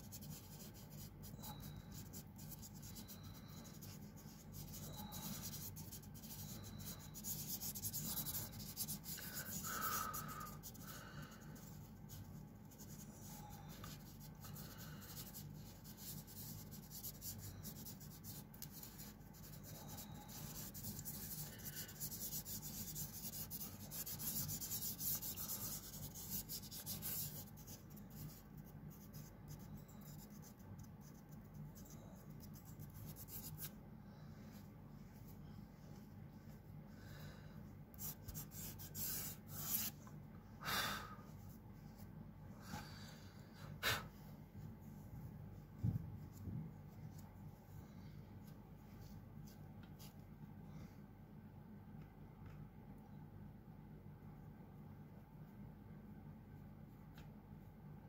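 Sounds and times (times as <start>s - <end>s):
fingertips rubbing on paper: 0.0s - 33.7s, 38.0s - 40.0s.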